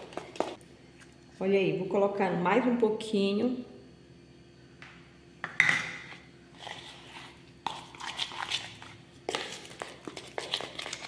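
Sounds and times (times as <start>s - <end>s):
spoon scraping plastic bowl: 6.0s - 11.0s.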